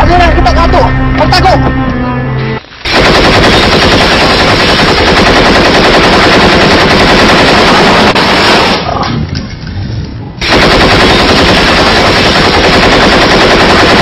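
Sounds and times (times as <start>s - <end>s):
machine gun firing: 2.8s - 9.0s, 10.4s - 14.0s.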